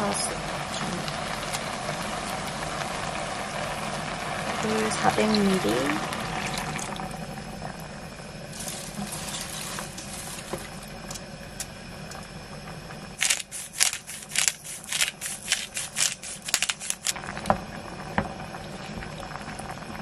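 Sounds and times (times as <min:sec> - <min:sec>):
water pouring into a pot: 0:00.0 - 0:11.2, 0:13.2 - 0:20.0
pepper grinder clicks: 0:13.2 - 0:17.2.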